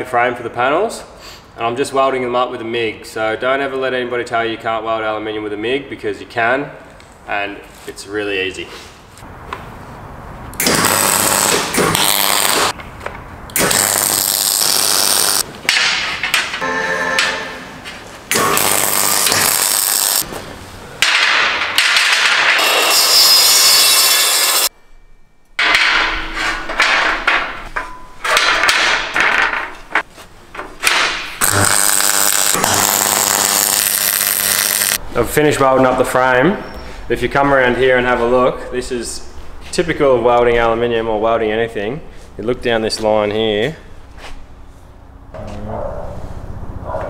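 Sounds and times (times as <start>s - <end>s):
welder arc crackling: 10.6s - 12.8s, 13.5s - 15.4s, 18.3s - 20.2s, 31.4s - 35.0s
metal angle knocking and scraping: 25.6s - 31.4s.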